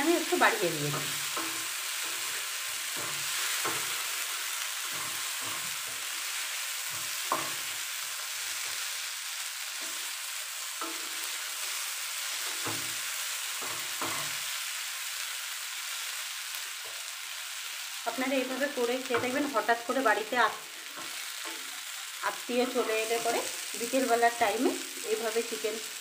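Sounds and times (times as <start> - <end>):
chicken sizzling in a pan: 0.0 - 26.0
wooden spatula scraping a pan: 0.9 - 7.8.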